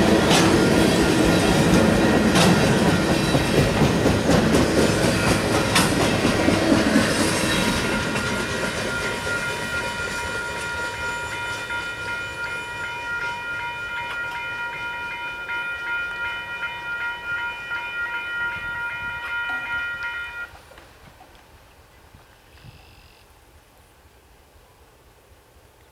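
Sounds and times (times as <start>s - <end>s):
train boxcars clattering on rails: 0.0s - 20.6s
high-pitched multi-tone ringing: 7.4s - 20.5s.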